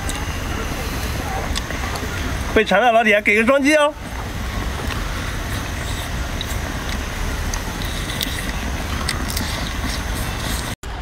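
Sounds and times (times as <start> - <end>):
faint chewing clicks: 4.8 - 10.8.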